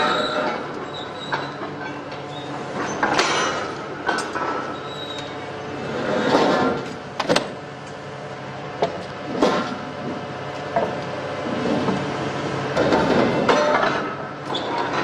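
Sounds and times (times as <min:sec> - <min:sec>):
scraping squeals of steel pipes: 0:00.0 - 0:03.6, 0:04.6 - 0:05.4, 0:14.4 - 0:15.0.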